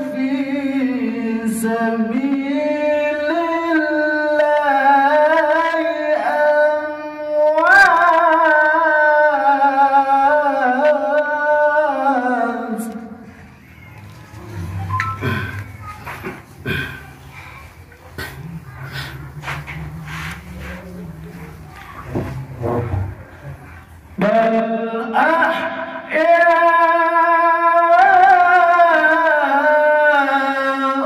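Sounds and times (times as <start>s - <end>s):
man reciting melodically into microphone: 0.0s - 13.2s, 24.2s - 31.0s.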